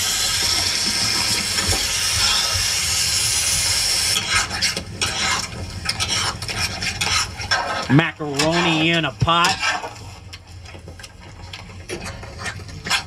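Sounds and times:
metal spatula scraping griddle: 0:04.2 - 0:10.1.

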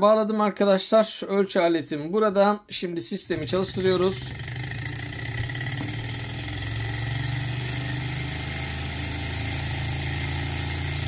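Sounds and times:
small engine mechanical whir: 0:03.3 - 0:11.0.

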